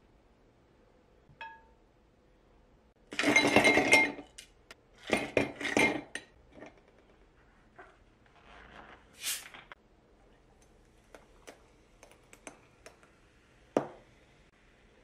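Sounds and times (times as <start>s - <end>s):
dishes and cutlery clattering: 3.1s - 4.4s, 5.0s - 7.0s.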